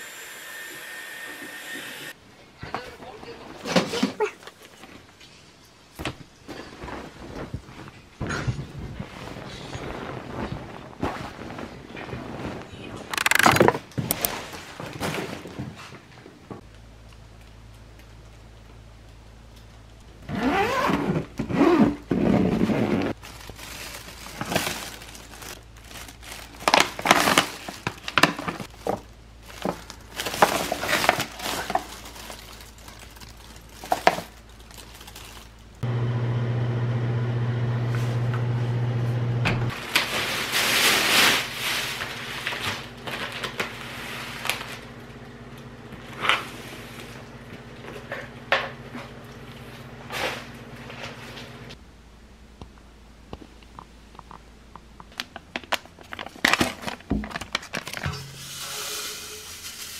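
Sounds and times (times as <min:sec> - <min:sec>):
plastic bags rustling: 0:08.7 - 0:16.0, 0:20.7 - 0:35.8, 0:39.7 - 0:45.0, 0:55.2 - 0:59.9.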